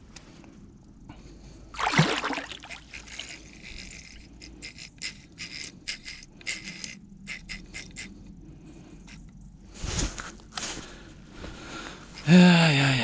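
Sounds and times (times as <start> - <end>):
fish splashing in water: 1.8 - 3.2
water sloshing: 1.8 - 3.9.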